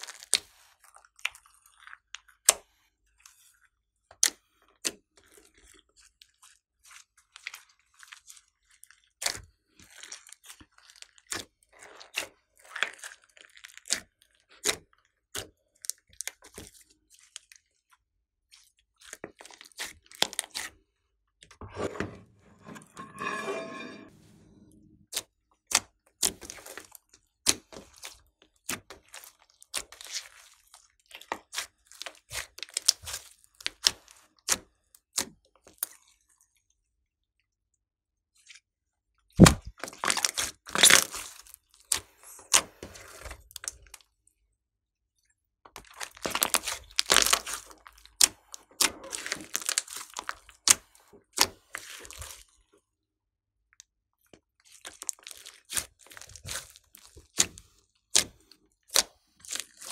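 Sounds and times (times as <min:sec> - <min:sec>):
slime squelch: 0:00.0 - 0:15.6, 0:16.2 - 0:20.8, 0:26.2 - 0:34.6, 0:39.4 - 0:43.7, 0:45.8 - 0:52.7, 0:54.3 - 0:59.9.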